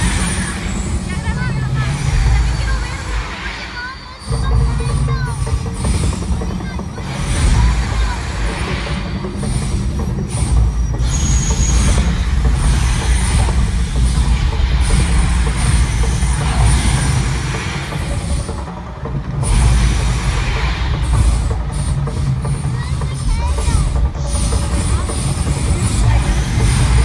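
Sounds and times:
deep continuous rumble: 0.0 - 27.0
gas flames whooshing: 0.0 - 27.0.

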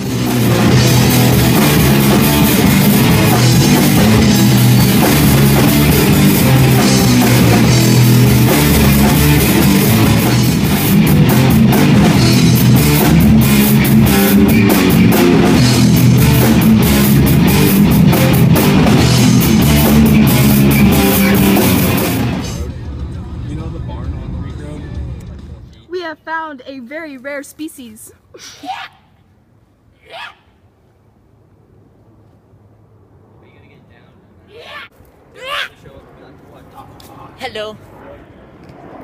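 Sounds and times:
drum kit and cymbal hits: 0.0 - 22.7
electric guitars: 0.0 - 23.1.

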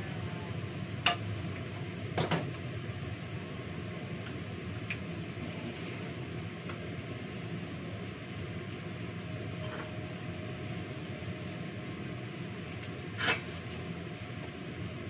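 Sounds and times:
kitchen extractor fan hum: 0.0 - 15.0
metal cookware clanking: 9.6 - 10.0, 13.2 - 13.6.

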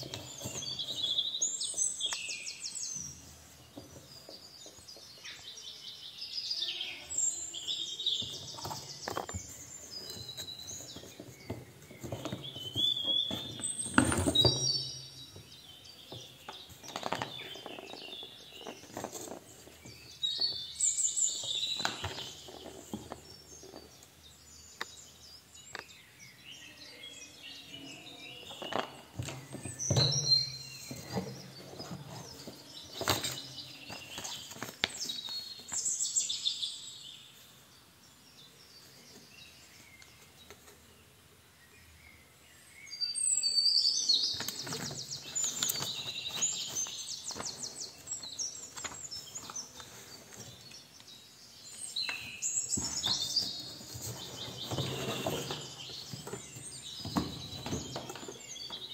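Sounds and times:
cardboard and plastic rustling: 0.0 - 2.0, 8.0 - 15.5, 16.1 - 24.0, 28.4 - 35.9, 44.2 - 50.8, 52.0 - 58.9.

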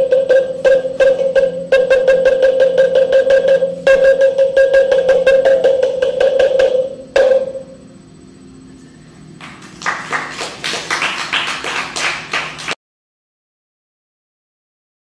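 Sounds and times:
ringing pitched percussion: 0.0 - 10.4
audience applause: 9.4 - 12.8.

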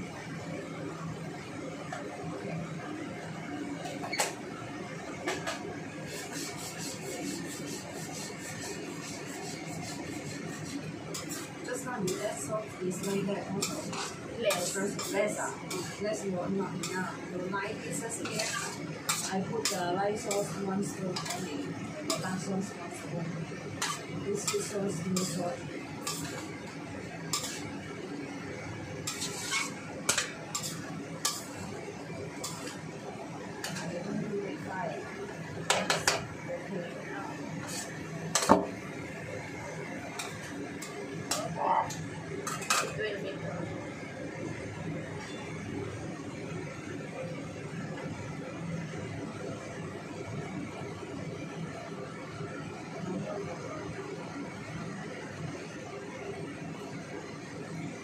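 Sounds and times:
food sizzling: 4.0 - 51.4
metal ladle scraping a wok: 6.1 - 17.2, 17.9 - 22.5, 23.8 - 26.7, 27.3 - 27.8, 29.0 - 31.7, 32.3 - 32.8, 33.6 - 33.9, 37.6 - 38.5, 42.4 - 43.0.

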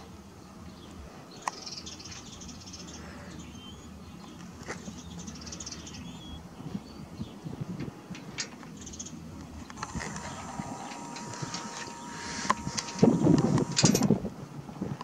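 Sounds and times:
bird chirps: 1.4 - 7.4
low steady hum: 9.2 - 14.2
sharp click: 9.7 - 14.1
fluttering high hiss: 9.8 - 14.0.

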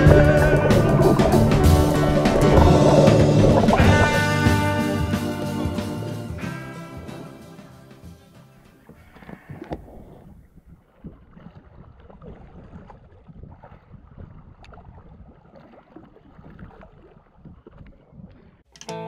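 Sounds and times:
shark thrashing splashing water: 0.0 - 4.8, 9.2 - 18.2
wind rumble on microphone: 9.4 - 15.5.

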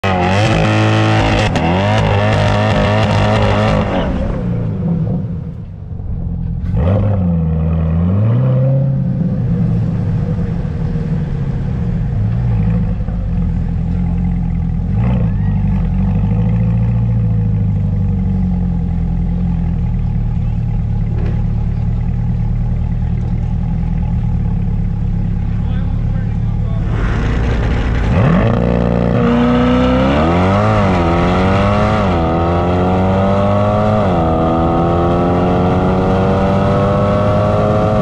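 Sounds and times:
car engine revving: 0.0 - 38.0.

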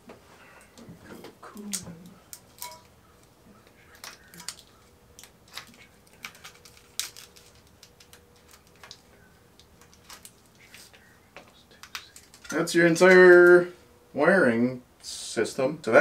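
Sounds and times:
plastic connectors clicking: 1.6 - 10.5, 11.4 - 13.6.

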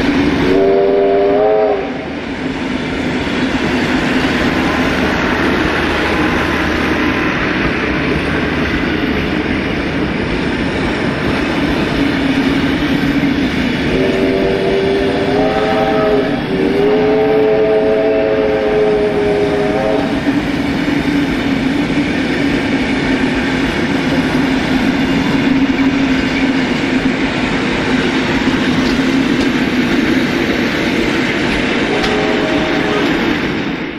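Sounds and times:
train wheels rumbling: 0.0 - 33.9
steam whistle blast: 0.4 - 2.1, 13.9 - 20.2, 31.8 - 33.1.

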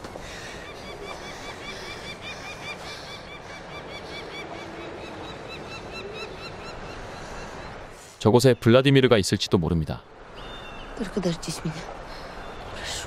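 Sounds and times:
flock of birds calling: 0.0 - 7.9
outdoor ambience hiss: 0.0 - 13.0.

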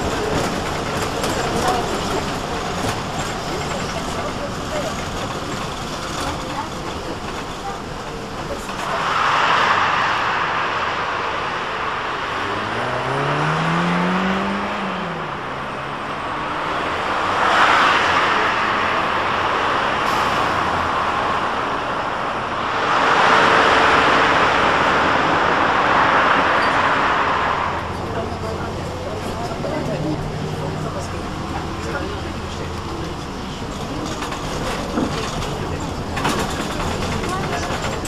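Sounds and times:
buses passing: 0.0 - 38.0
road traffic noise: 0.0 - 38.0
bus drive whine rising: 7.9 - 34.2.

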